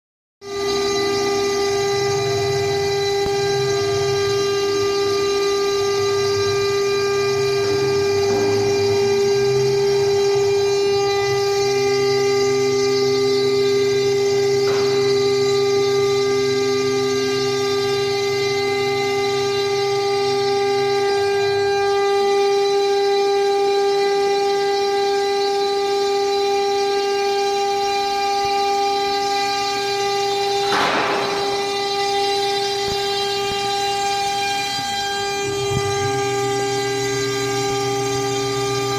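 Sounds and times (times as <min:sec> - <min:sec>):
low motor tones: 0:00.4 - 0:38.9
router spindle whine: 0:00.4 - 0:38.9.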